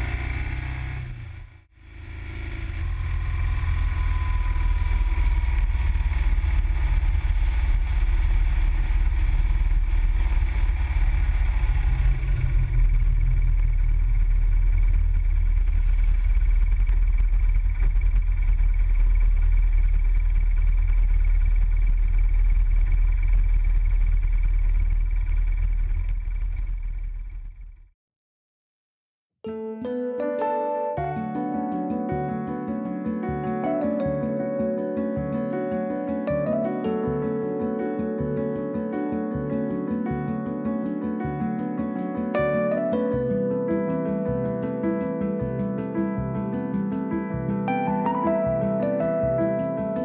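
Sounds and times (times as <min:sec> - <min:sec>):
motorcycle engine rumble: 0:00.0 - 0:27.9.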